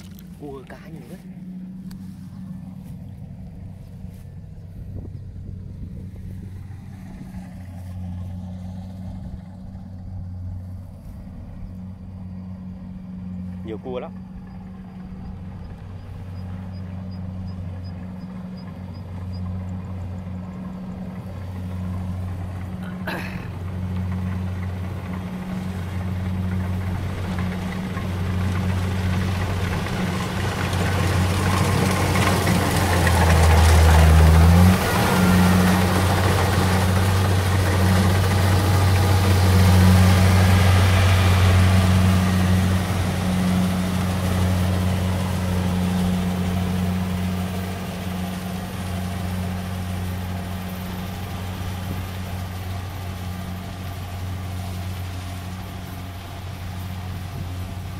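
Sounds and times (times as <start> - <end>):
combine harvester engine drone: 0.0 - 57.9
deeper drone: 0.0 - 57.9
cutting and threshing machinery: 17.6 - 57.9.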